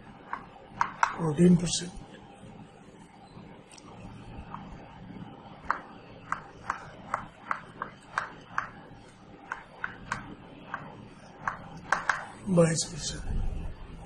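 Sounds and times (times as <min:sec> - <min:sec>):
chalk tapping on blackboard: 0:00.2 - 0:01.2, 0:05.6 - 0:12.4.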